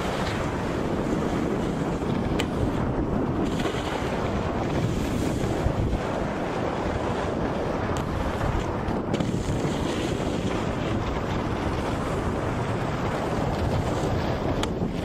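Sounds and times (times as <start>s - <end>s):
wind buffeting microphone: 0.0s - 15.0s
snowboards sliding on snow: 2.8s - 14.6s.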